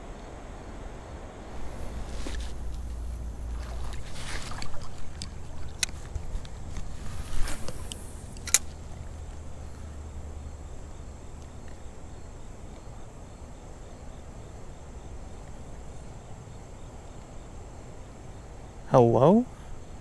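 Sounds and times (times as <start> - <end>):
faint insects chirring: 0.0 - 20.0
fishing reel bail snapping shut: 7.6 - 8.8.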